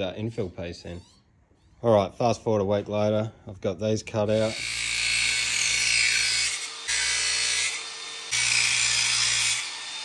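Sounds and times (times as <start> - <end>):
angle grinder cutting steel: 4.2 - 10.0.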